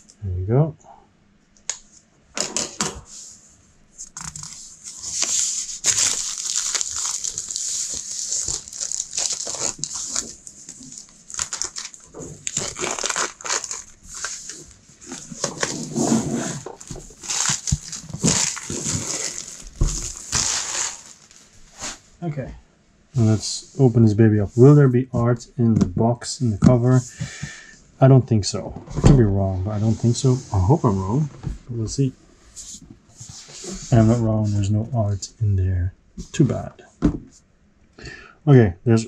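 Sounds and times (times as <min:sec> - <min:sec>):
plastic shrink wrap crinkling: 0:04.0 - 0:22.0.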